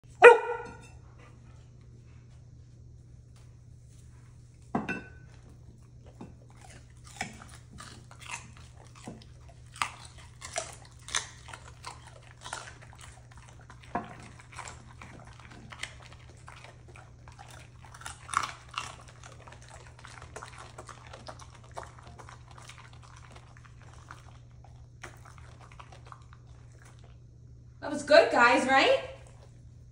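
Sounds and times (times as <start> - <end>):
dogs crunching carrots: 3.3 - 29.9.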